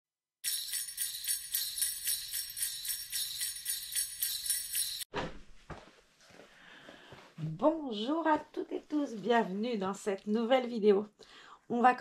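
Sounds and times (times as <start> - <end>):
jingle bells shaken: 0.4 - 5.1.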